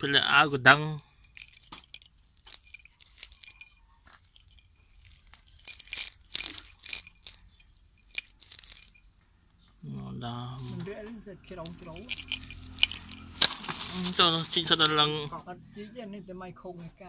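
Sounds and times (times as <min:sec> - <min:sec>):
plastic bag crinkling: 0:01.2 - 0:09.1, 0:11.6 - 0:15.3.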